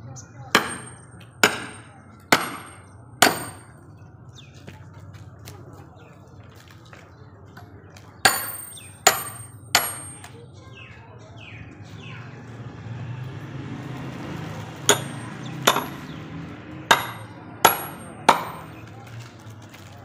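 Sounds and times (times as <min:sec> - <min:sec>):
hammer striking metal wedge: 0:00.5 - 0:03.8, 0:08.2 - 0:10.4, 0:14.9 - 0:16.2, 0:16.8 - 0:18.8.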